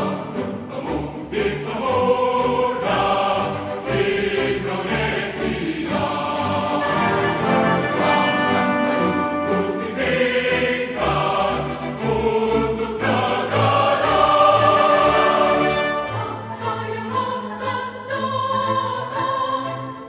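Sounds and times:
choir singing long notes: 0.0s - 20.0s
orchestral backing: 0.0s - 20.0s.

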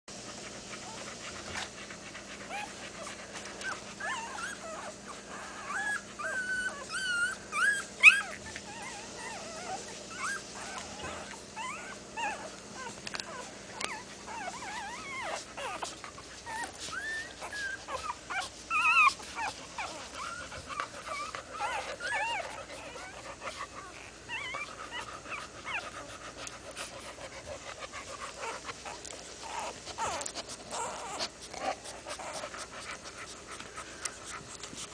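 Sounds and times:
puppies squeaking and whimpering: 2.3s - 34.9s.

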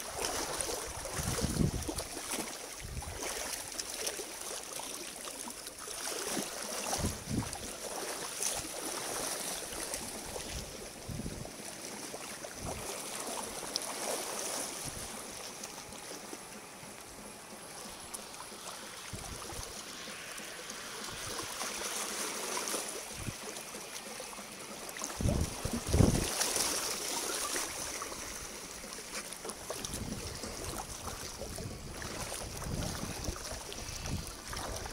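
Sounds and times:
water gurgling among rocks: 0.0s - 2.2s, 24.7s - 34.9s.

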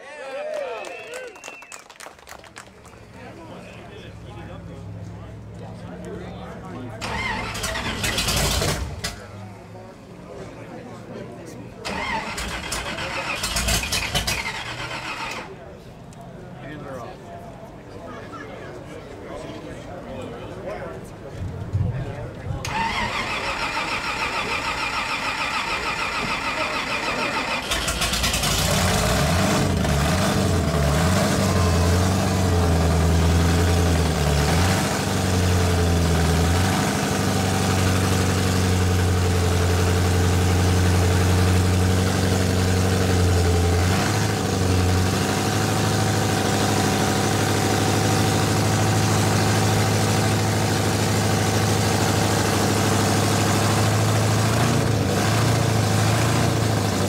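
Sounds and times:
drag racing engine revving and idling: 3.1s - 15.7s, 22.6s - 57.0s
starter motor whirring: 7.0s - 9.1s, 22.7s - 29.0s.

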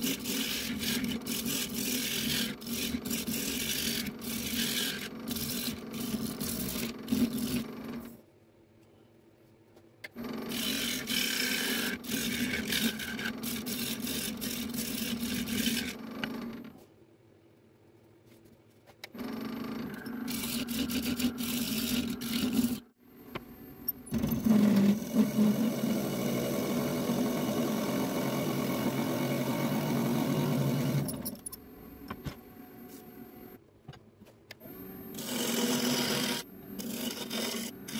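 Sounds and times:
turning tool scraping wood: 0.0s - 7.8s, 10.5s - 16.0s
wood lathe humming: 35.2s - 37.9s.

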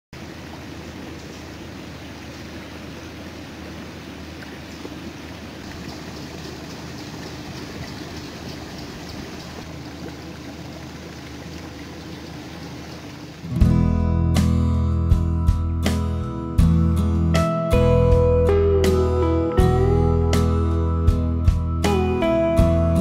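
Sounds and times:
water dripping: 0.2s - 13.6s
water trickling over rocks: 0.2s - 13.6s.

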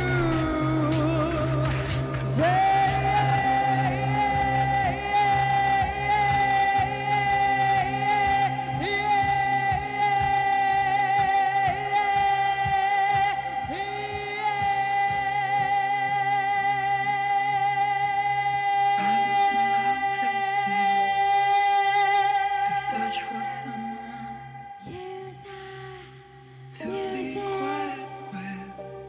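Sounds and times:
dance music: 0.0s - 25.1s
woman singing: 18.9s - 29.0s.

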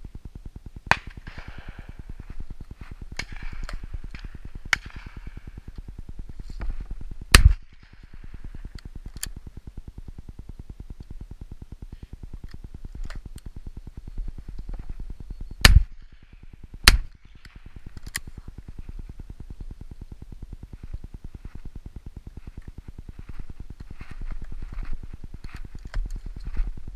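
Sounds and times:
steady low rumble: 0.0s - 26.9s
distant gunshots: 0.9s - 2.1s.

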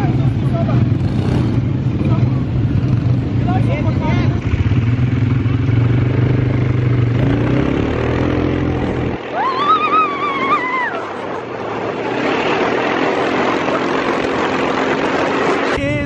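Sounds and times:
quad bike engine running: 0.0s - 16.0s
wind noise on microphone: 8.9s - 16.0s
woman whooping: 9.2s - 11.3s.

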